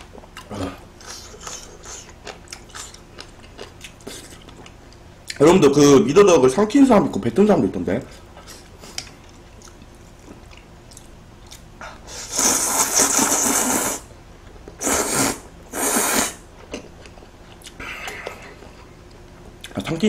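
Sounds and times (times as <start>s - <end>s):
faint chewing clicks: 1.4s - 5.4s, 8.6s - 11.7s
noodles slurped: 12.2s - 14.1s, 14.8s - 16.4s.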